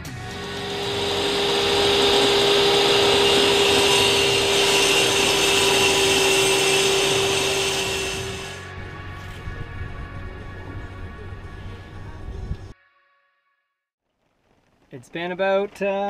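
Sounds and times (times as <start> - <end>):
table saw ripping wood: 0.2 - 8.7.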